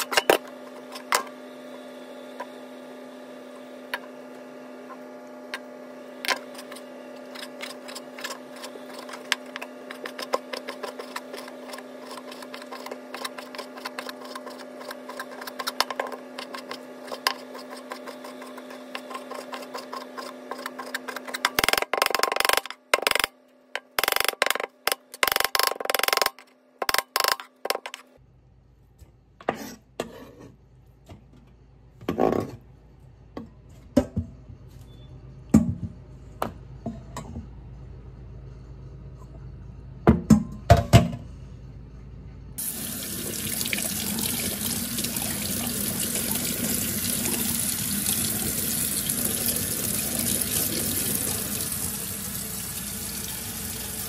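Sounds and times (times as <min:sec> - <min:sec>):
knife scraping cutting board: 0:06.4 - 0:21.4, 0:29.4 - 0:30.6
electrical hum: 0:30.6 - 0:54.0.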